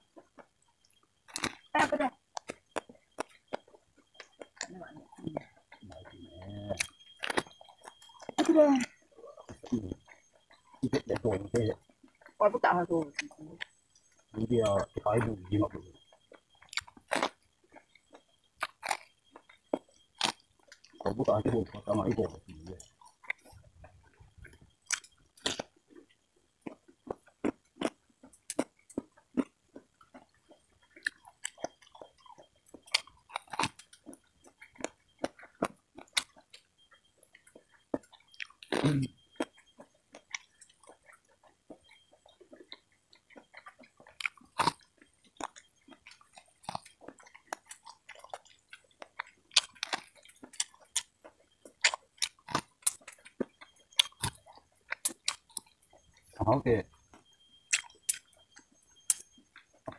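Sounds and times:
wet chewing clicks: 0.0s - 59.9s
crisp bites and crunches: 24.9s - 25.7s.

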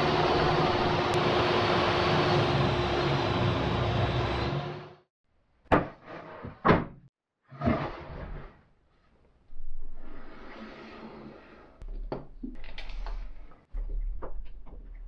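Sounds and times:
board knocks and scrapes: 5.7s - 8.7s.

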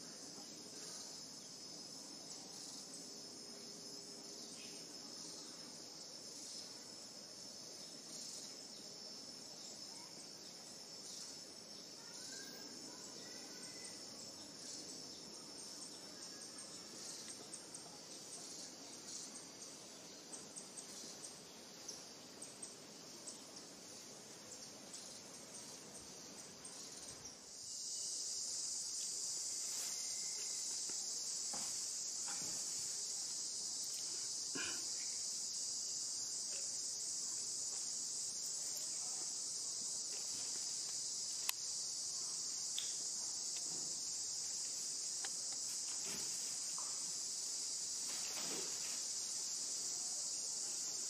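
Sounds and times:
insects chorus: 0.0s - 51.0s
faint rustles and ticks: 36.4s - 41.8s, 42.7s - 47.2s.

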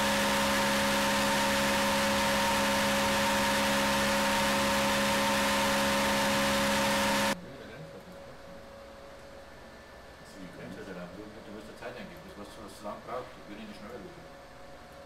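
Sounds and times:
engine running under heavy load: 0.0s - 7.4s.

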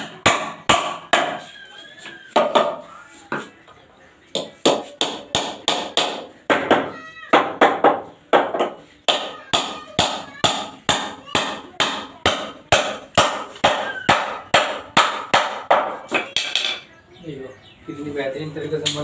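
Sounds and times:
hammer striking a nail: 0.0s - 1.4s, 4.3s - 16.8s.

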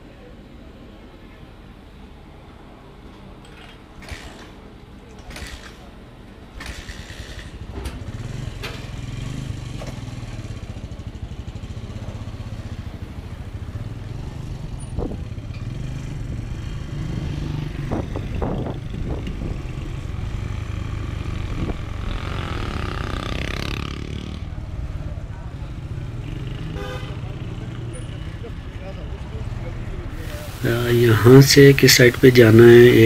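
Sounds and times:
motorcycle engine running: 6.6s - 28.4s.

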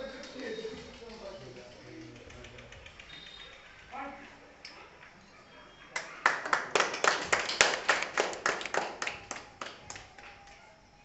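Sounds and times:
people clapping: 5.9s - 10.7s.

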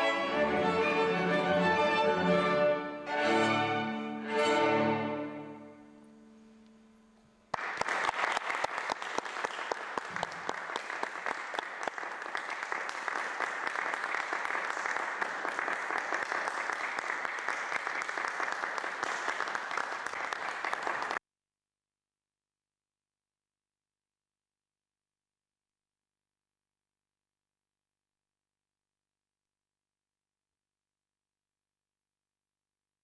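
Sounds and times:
audience applause: 7.5s - 21.2s.

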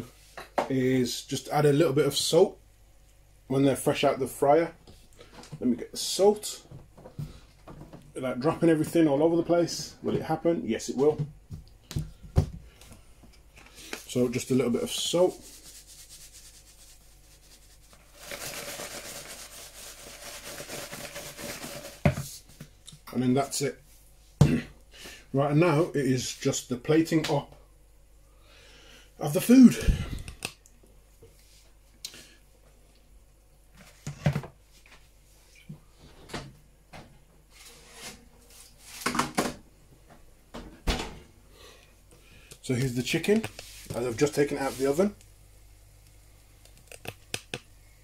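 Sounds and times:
salt mill grinding: 18.1s - 22.1s.

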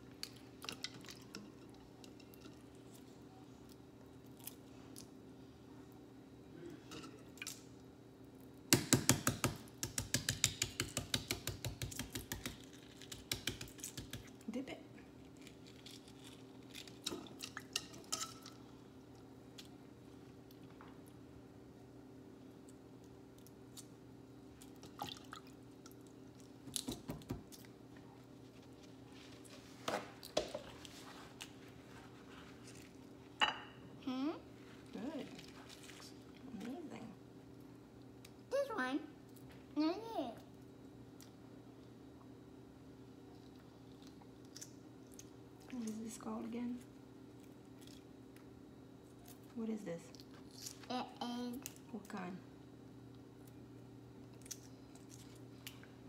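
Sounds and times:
egg tapping on counter: 8.7s - 14.2s.

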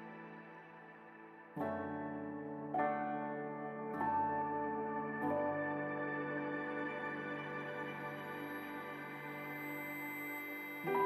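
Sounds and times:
soft ambient instrumental music: 0.0s - 11.0s.

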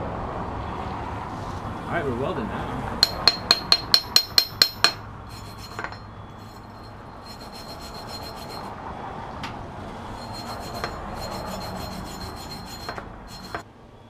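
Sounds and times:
wire brush scrubbing metal: 3.0s - 8.7s, 10.1s - 13.6s.

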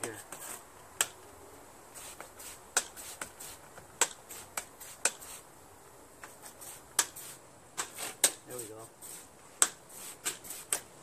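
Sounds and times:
spray bottle squirts: 2.0s - 5.4s, 6.3s - 8.4s, 9.0s - 10.9s.

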